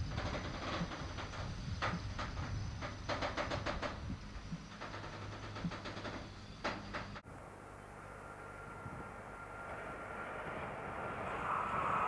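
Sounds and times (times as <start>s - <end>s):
train wheels rumbling on rails: 0.0s - 7.2s
wheels clacking: 0.0s - 7.3s.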